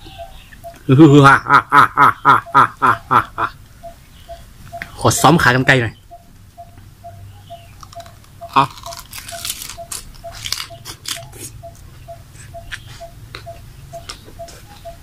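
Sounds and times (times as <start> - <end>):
crunching and chewing food: 7.7 - 15.0.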